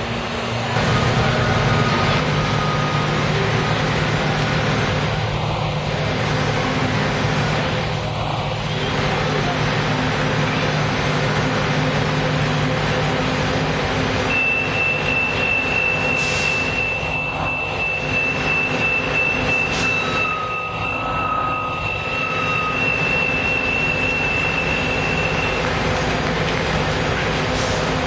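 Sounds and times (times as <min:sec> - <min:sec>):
bus diesel engine idling: 0:00.0 - 0:28.0
lower electronic tone: 0:14.3 - 0:25.6
high-pitched electronic tone: 0:14.3 - 0:25.7.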